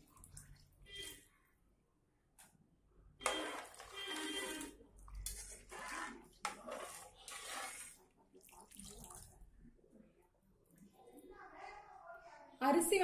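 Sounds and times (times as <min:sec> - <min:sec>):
water pouring into metal pot: 0:03.3 - 0:09.4.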